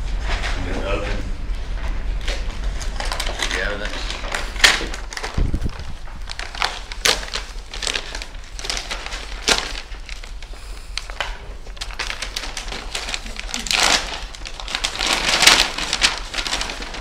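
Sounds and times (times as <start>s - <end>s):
plastic bag crinkling: 2.2s - 17.0s.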